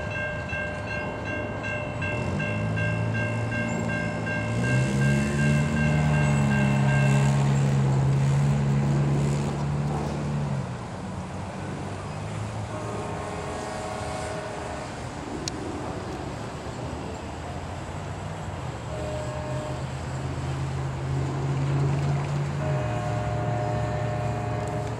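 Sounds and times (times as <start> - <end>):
railroad crossing bell ringing: 0.0 - 8.0
cars driving over crossing: 0.0 - 15.2.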